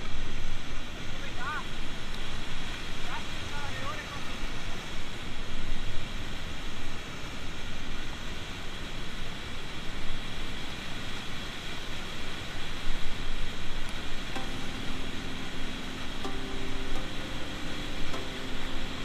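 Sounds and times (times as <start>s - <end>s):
white water rushing: 0.0s - 19.0s
music with long held notes: 14.4s - 19.0s.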